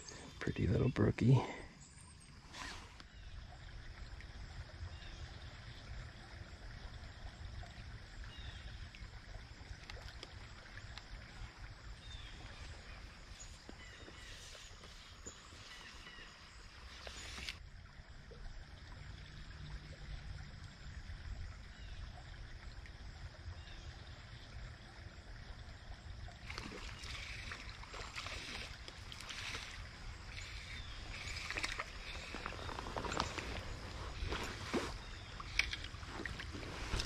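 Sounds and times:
stream running water: 0.0s - 37.0s
fishing reel clicks and rustles: 17.0s - 17.6s, 26.5s - 37.0s.

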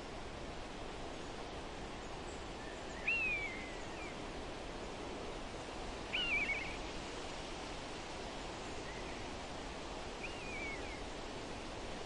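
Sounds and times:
flowing river water: 0.0s - 12.0s
songbird calling: 2.6s - 4.2s, 6.1s - 6.8s, 10.2s - 11.1s.

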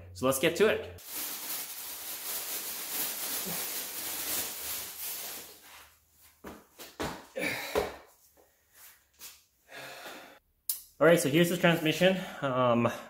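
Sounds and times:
plastic bag rustling: 1.0s - 6.0s.

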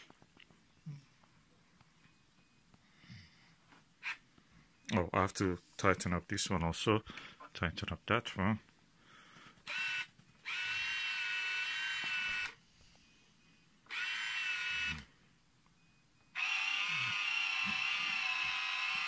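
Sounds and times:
telescope mount motors whining: 9.7s - 12.6s, 13.9s - 15.1s, 16.3s - 19.0s.

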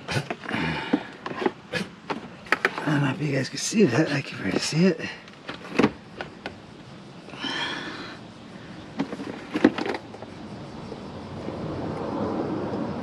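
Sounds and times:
steady rumble: 0.0s - 13.0s
clicks and knocks of hand work: 0.1s - 2.9s.

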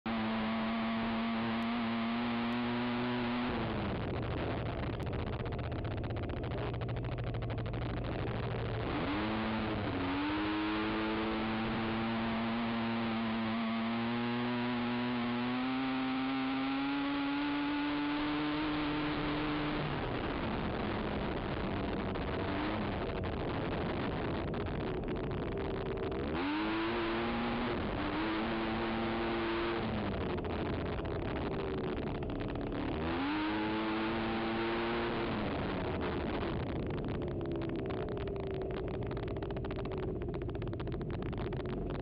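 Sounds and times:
atv engine revving: 0.1s - 42.0s
rapid ticking: 3.6s - 9.3s, 20.0s - 26.5s, 29.9s - 33.4s, 35.4s - 42.0s.

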